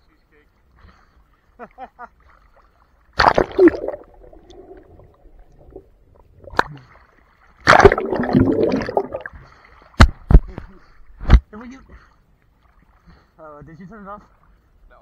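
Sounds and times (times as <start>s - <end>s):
water splashing: 2.2s - 10.5s
muffled underwater gurgling: 7.7s - 9.3s.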